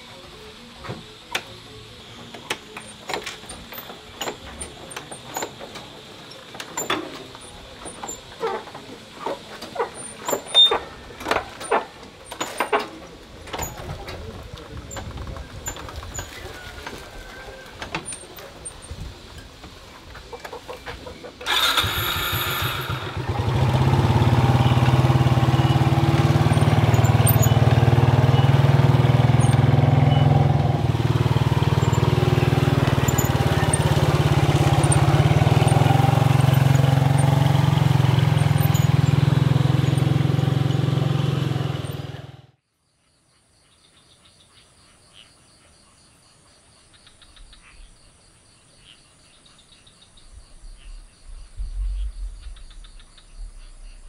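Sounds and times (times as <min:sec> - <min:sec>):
faint insects chirping: 0:00.0 - 0:11.2, 0:42.6 - 0:54.0
small motorcycle engine running: 0:00.0 - 0:16.9, 0:21.4 - 0:42.6
road noise: 0:00.0 - 0:42.6.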